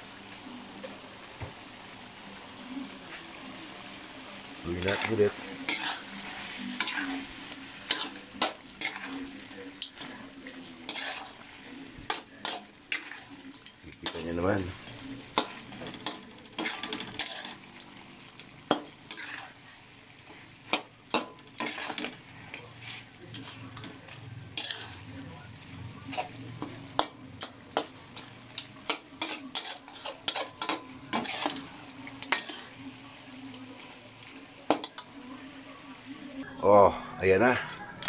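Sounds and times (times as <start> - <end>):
food sizzling in a wok: 0.0 - 36.5
spatula scraping a pan: 4.7 - 25.3, 26.0 - 33.1.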